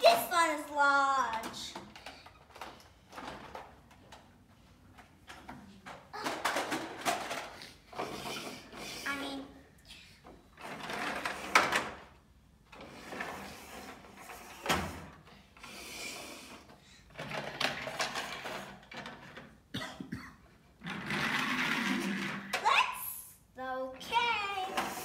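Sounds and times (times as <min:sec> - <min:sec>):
toy trucks rolling on wood: 0:00.0 - 0:09.5, 0:10.2 - 0:19.7, 0:20.6 - 0:22.7, 0:24.0 - 0:25.0
toy trucks knocking down: 0:06.2 - 0:08.7, 0:20.8 - 0:22.7.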